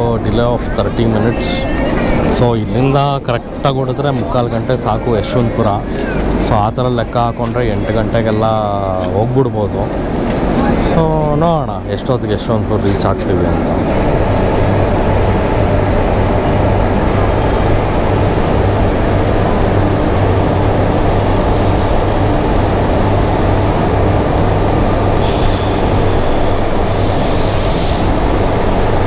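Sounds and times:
low hum: 0.0 - 29.0
train running rumble: 0.0 - 29.0
short hiss: 26.9 - 28.1.

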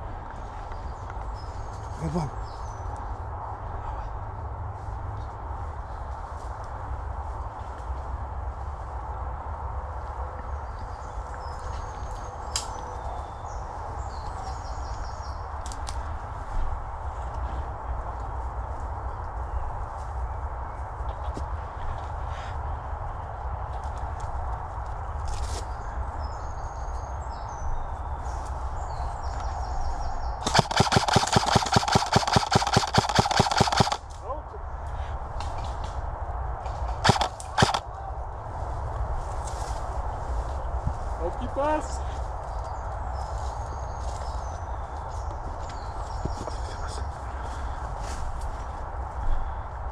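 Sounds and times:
footsteps rustling through undergrowth: 4.7 - 9.2, 10.6 - 26.9, 27.7 - 34.1, 36.7 - 49.4
airsoft gun rapid firing: 30.4 - 34.0, 37.0 - 37.8
sharp click: 30.4 - 34.1, 37.0 - 37.8.

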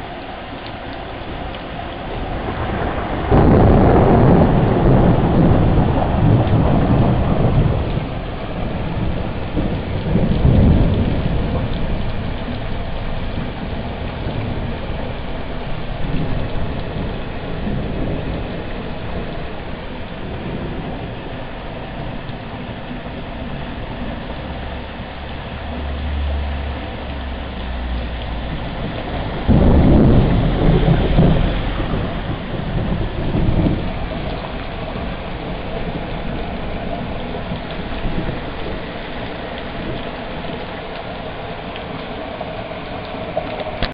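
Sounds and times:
rain on pavement: 0.0 - 43.9
thunder rumbling: 0.0 - 43.9
loud thunderclap: 2.2 - 12.4, 28.5 - 41.7.

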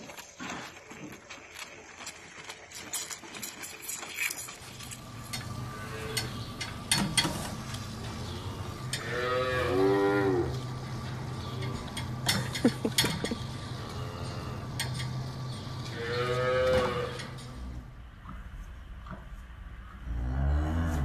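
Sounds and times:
steady low hum: 4.6 - 21.0
calf mooing: 5.4 - 6.4, 8.4 - 11.0, 15.9 - 17.5.

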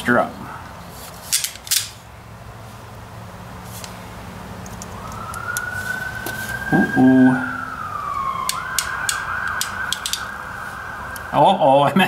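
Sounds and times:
distant siren: 4.1 - 12.0
low voice: 6.7 - 7.6
wire crimper clicks: 8.4 - 10.3.

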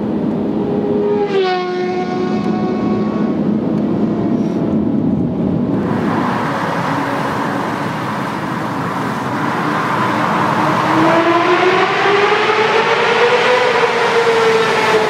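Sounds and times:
traffic rushing in tunnel: 0.0 - 15.0
motorcycle accelerating: 5.7 - 15.0
motorcycle engine: 5.8 - 15.0.

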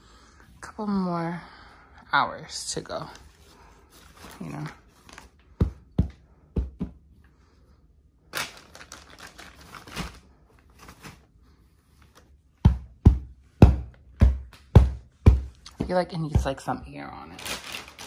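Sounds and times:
plastic packaging crinkling: 3.9 - 5.4, 8.3 - 12.3, 17.1 - 18.0.

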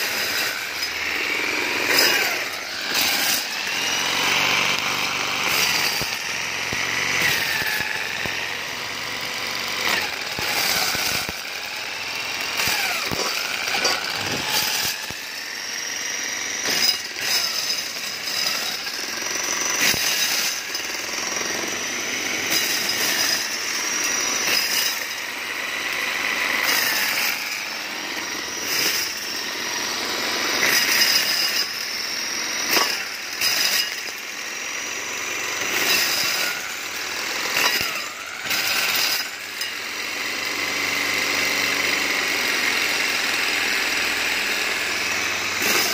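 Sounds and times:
kernels rattling and clicking: 0.0 - 8.4, 16.4 - 21.6, 32.6 - 34.2, 37.4 - 39.8
maize sheller machine whine: 0.0 - 45.9.

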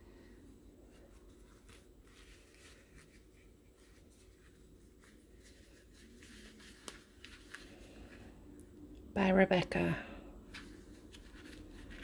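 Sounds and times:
cloth pouch rustling: 0.7 - 8.4, 10.4 - 12.0.

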